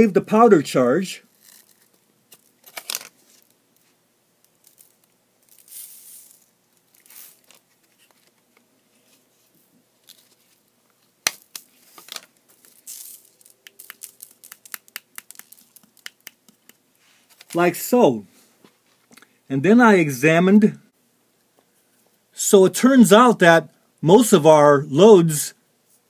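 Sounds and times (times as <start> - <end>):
powder pouring hiss: 5.5 - 6.4
paper rustling: 11.5 - 17.6.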